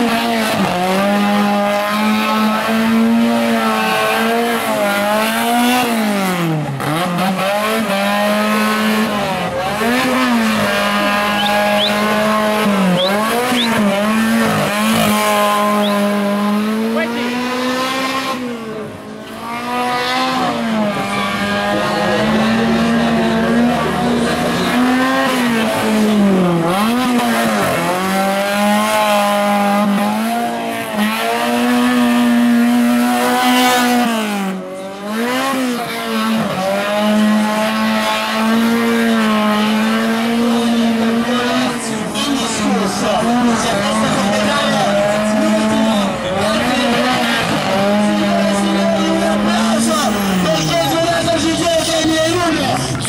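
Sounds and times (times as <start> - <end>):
car engine revving high: 0.0 - 53.0
tyres squealing: 10.0 - 16.2.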